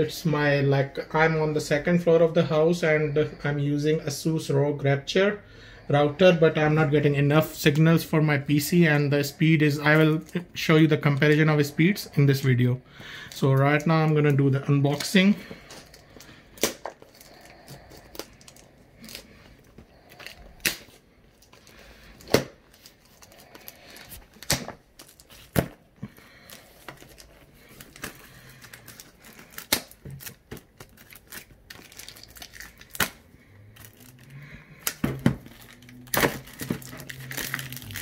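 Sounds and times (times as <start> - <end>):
plastic wrap crinkling and tearing: 13.3 - 38.0.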